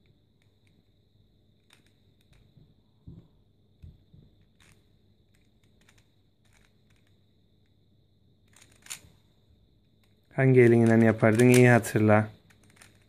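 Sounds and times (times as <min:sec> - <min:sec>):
plastic puzzle cube clicks: 0:04.4 - 0:07.2, 0:08.5 - 0:09.1, 0:10.0 - 0:13.0.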